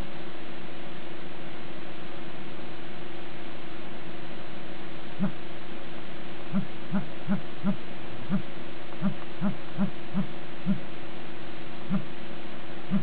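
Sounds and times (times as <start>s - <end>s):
low hum: 0.0s - 13.0s
low phone feedback pulses: 11.9s - 12.1s.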